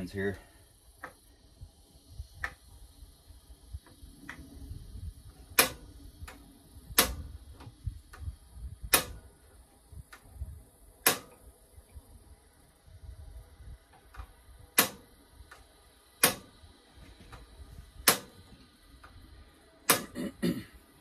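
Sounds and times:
gas burner igniter clicking: 0:02.2 - 0:02.8, 0:05.1 - 0:12.0, 0:13.9 - 0:16.7, 0:17.3 - 0:19.3, 0:19.9 - 0:20.1.

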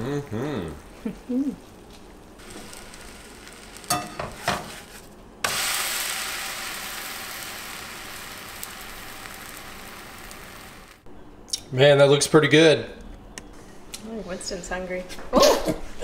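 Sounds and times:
loud sizzle in frying pan: 0:02.4 - 0:11.1.

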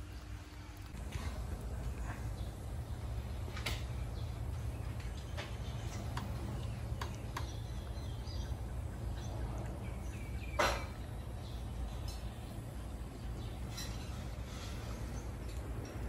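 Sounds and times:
steady low rumble: 0:00.0 - 0:16.0.

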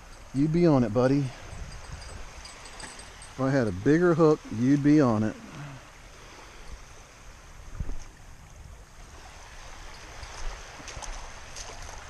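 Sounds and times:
waves lapping on shore: 0:00.0 - 0:12.0.

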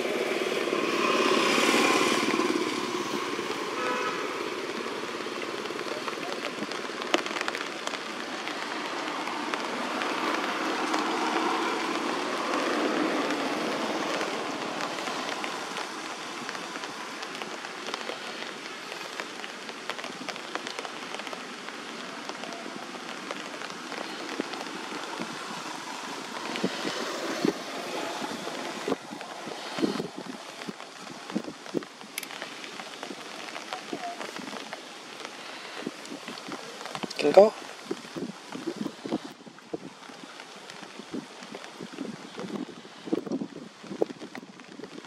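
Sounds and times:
vehicle passing: 0:00.0 - 0:05.0
road traffic: 0:00.0 - 0:39.4.

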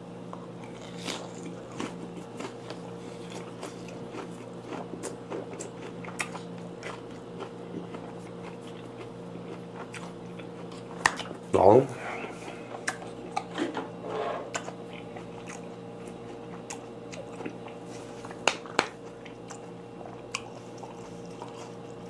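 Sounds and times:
close-up chewing: 0:00.6 - 0:11.5, 0:12.2 - 0:13.5, 0:14.5 - 0:22.0
sharp clicks of biting: 0:12.8 - 0:13.5.

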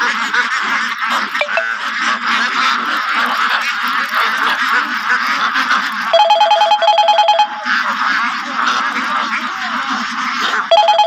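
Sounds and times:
flock of ducks calling: 0:00.0 - 0:11.0.

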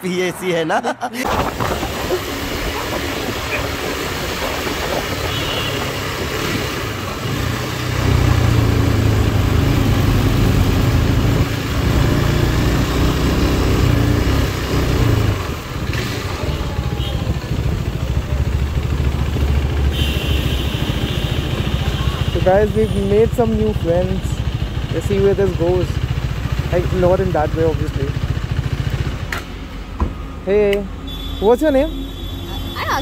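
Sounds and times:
motorcycle engine running: 0:01.5 - 0:29.8.

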